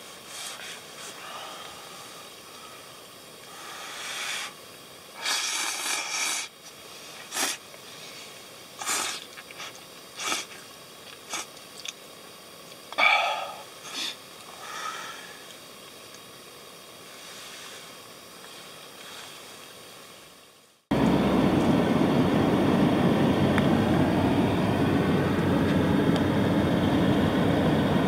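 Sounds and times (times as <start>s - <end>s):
person slurping noodles: 5.2s - 6.5s, 7.3s - 7.6s, 8.8s - 10.6s.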